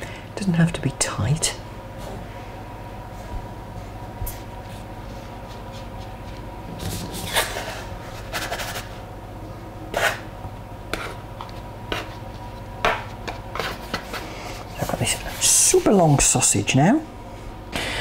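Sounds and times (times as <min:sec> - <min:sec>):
faint steady hum: 0:00.0 - 0:18.0
dough scraper scraping worktop: 0:09.9 - 0:10.3, 0:10.9 - 0:12.2.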